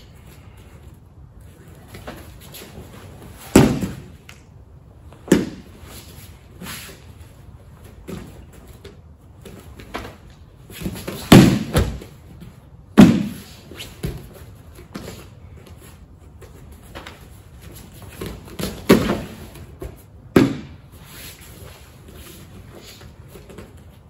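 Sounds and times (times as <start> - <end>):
thuds and slaps on foam mats: 3.4 - 4.2, 5.2 - 5.7, 10.8 - 12.2, 12.9 - 14.3, 18.2 - 20.8
body thrown onto mat: 9.8 - 12.2.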